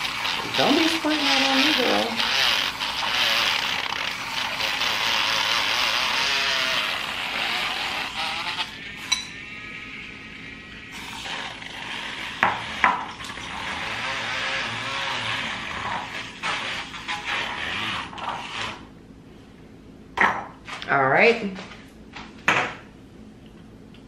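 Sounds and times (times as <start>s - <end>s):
electric milk frother whirring: 0.0s - 18.9s.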